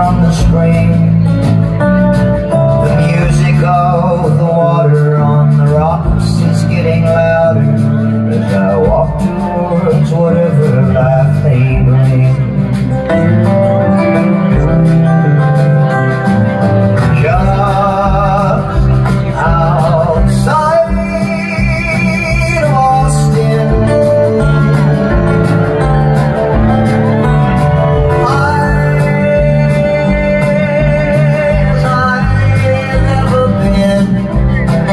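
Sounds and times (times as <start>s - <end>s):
bass line: 0.0s - 34.9s
strummed acoustic guitar: 0.0s - 34.9s
wavering lead melody: 6.3s - 34.9s.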